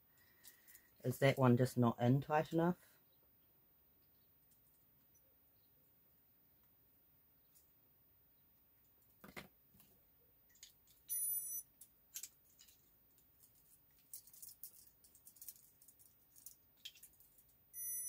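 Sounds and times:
electronic toy beep: 0:11.1 - 0:11.6, 0:17.8 - 0:18.0.

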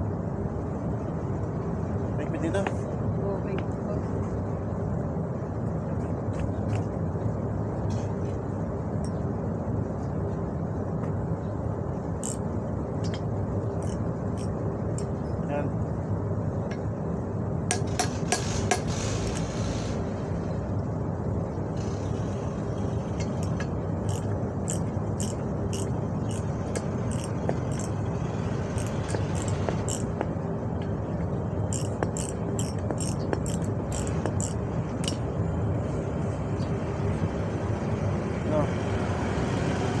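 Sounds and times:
low engine hum: 0:00.0 - 0:40.0
metallic clinks of hand tools: 0:27.1 - 0:28.0, 0:28.8 - 0:30.1, 0:31.7 - 0:35.2.

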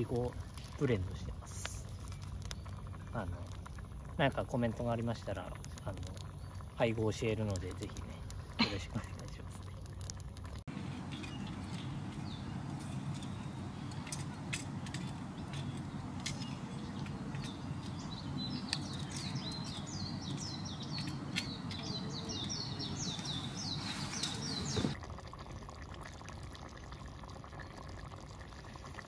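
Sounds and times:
campfire crackling: 0:00.0 - 0:26.8
bird chirping: 0:10.7 - 0:25.0
low background noise: 0:10.7 - 0:25.0.

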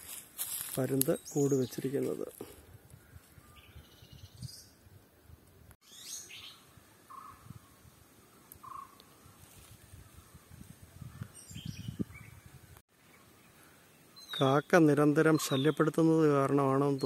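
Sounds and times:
bird chirps: 0:05.8 - 0:09.1, 0:11.0 - 0:16.0
whistled bird notes: 0:14.1 - 0:14.7, 0:15.3 - 0:15.9.

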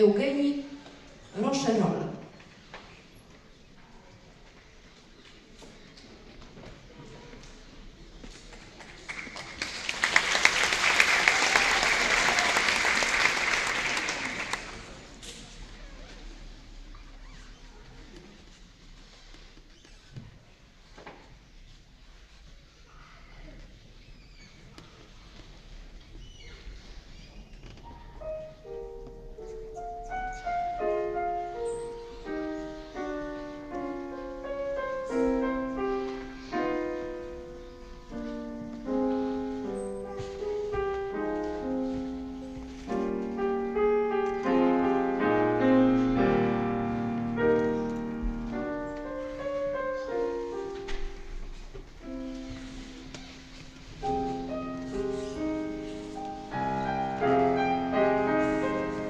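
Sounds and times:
solo grand piano piece: 0:27.8 - 0:59.0.

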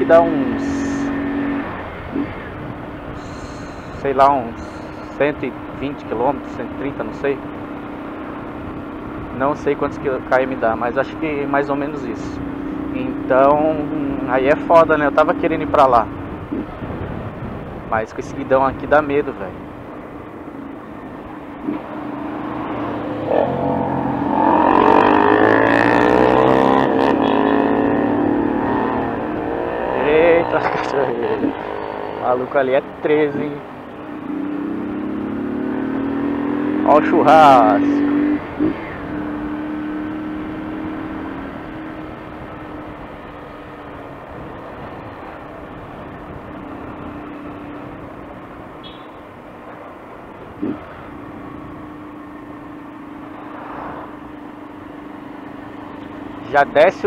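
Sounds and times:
road noise: 0:00.0 - 0:57.0
wind noise: 0:00.6 - 0:05.8, 0:15.6 - 0:19.7
small motorcycle engine accelerating: 0:22.8 - 0:32.4.

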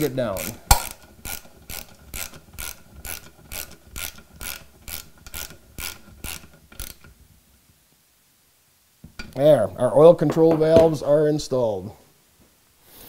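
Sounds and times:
ratchet wrench clicking: 0:00.4 - 0:07.2.

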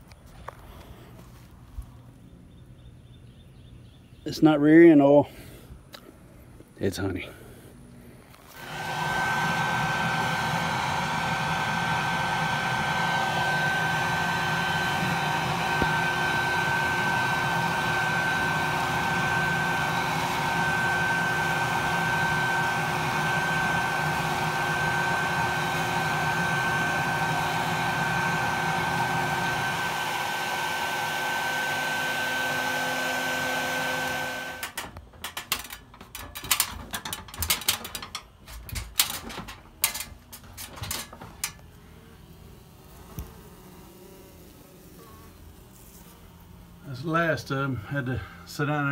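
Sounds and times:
vacuum whine: 0:08.3 - 0:38.1
knocks and rattles: 0:34.6 - 0:41.6.

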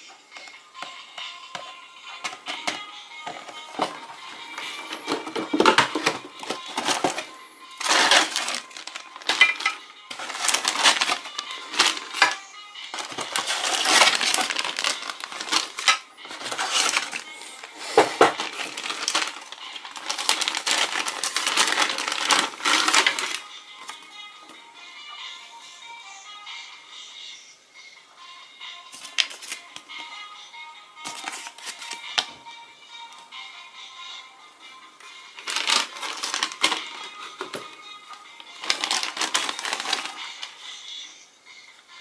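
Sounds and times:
background music: 0:00.0 - 0:42.0
plastic packets crinkling: 0:02.2 - 0:24.0, 0:29.0 - 0:29.7, 0:31.0 - 0:32.4, 0:35.4 - 0:40.6
cardboard box rustling: 0:03.7 - 0:12.3, 0:13.0 - 0:23.4, 0:35.5 - 0:37.6, 0:38.6 - 0:40.2.

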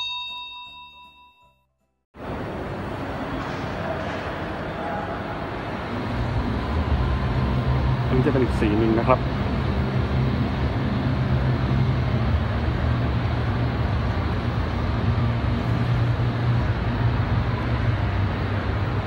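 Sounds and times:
indoor hall background din: 0:02.2 - 0:07.3.

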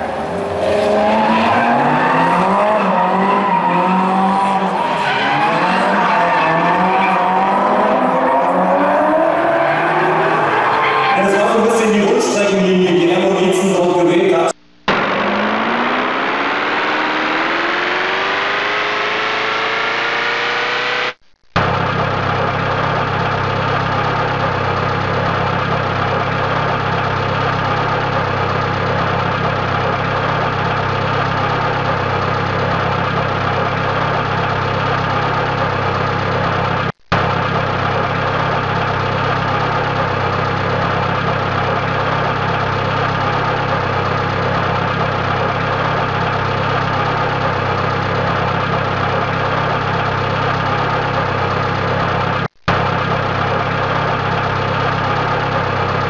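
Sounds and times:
car engine idling: 0:00.0 - 0:13.8, 0:14.8 - 0:19.6, 0:21.6 - 0:56.0.

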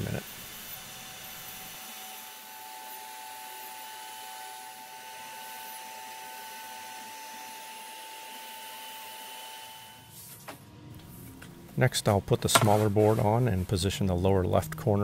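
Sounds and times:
router spindle whine: 0:00.4 - 0:10.1.

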